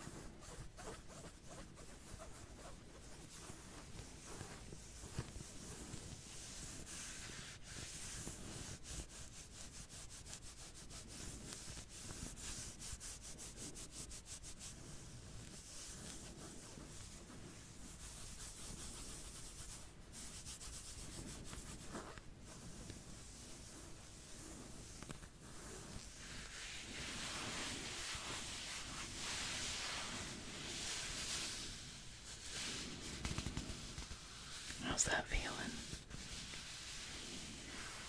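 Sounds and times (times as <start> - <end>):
back scratching and rubbing: 0.0 - 38.0.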